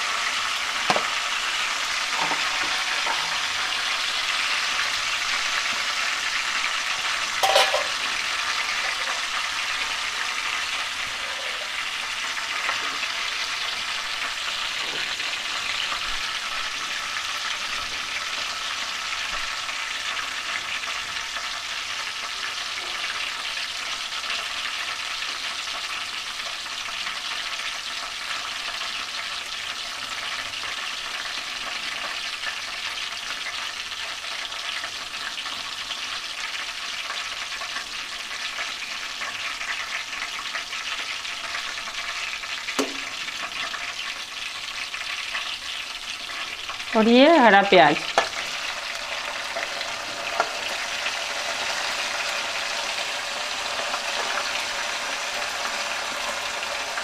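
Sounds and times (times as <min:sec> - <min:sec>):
ghee sizzling in a pan: 0:00.0 - 0:57.0.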